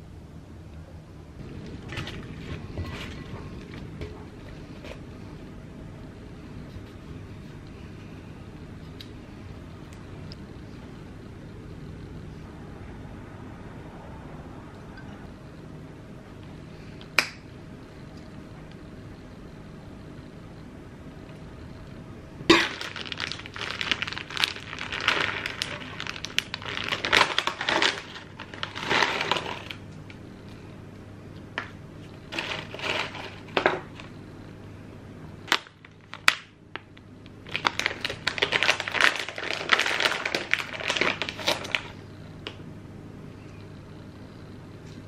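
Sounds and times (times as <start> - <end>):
croutons scattering onto lettuce: 22.5 - 29.8
plastic packet crinkling: 22.5 - 29.8, 32.3 - 33.6, 35.5 - 42.0.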